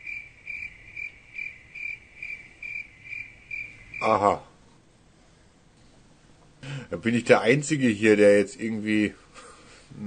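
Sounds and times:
crickets chirping: 0.0 - 4.6
man saying aha: 4.0 - 4.6.

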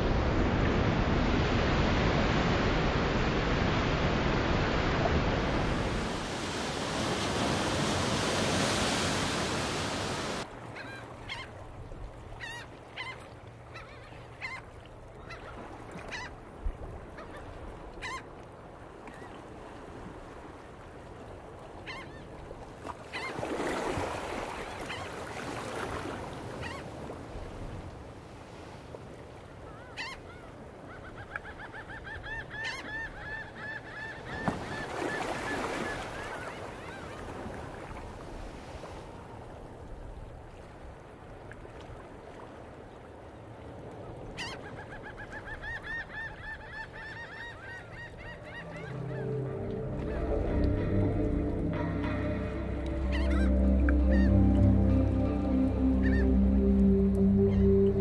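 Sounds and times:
bird honking calls: 44.4 - 58.0.

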